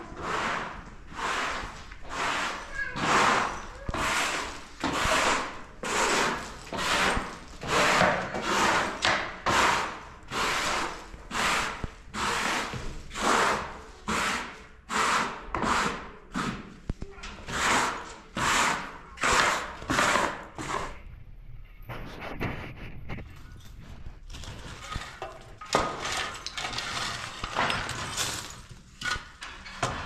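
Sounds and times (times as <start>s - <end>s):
hand saw cutting wood: 0.1s - 16.8s, 17.4s - 21.0s.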